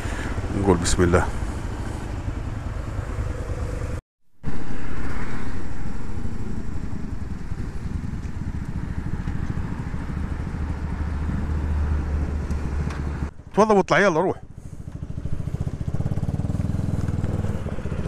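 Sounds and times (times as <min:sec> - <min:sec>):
motorcycle engine idling: 0:00.0 - 0:04.0, 0:06.2 - 0:13.8, 0:14.4 - 0:18.0
motorcycle riding along: 0:00.0 - 0:18.0
wind noise: 0:03.4 - 0:13.3.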